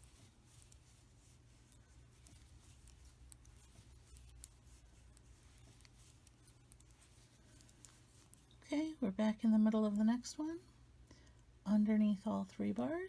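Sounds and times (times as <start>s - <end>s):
knitting needles clicking: 0.0s - 8.7s
low room hum: 0.0s - 13.0s.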